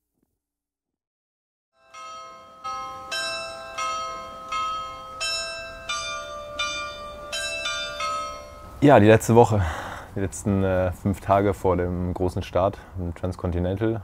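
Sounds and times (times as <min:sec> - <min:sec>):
church bells ringing: 0:01.8 - 0:09.5.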